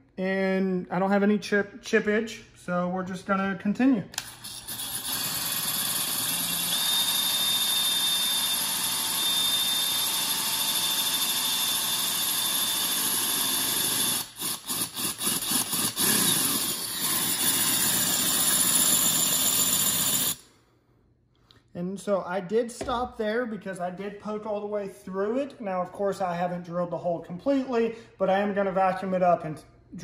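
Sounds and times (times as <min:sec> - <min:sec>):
drill grinding into ceramic: 0:04.2 - 0:20.5.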